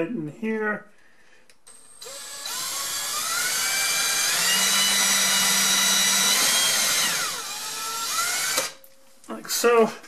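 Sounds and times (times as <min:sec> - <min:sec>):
power drill whine: 0:01.7 - 0:08.8.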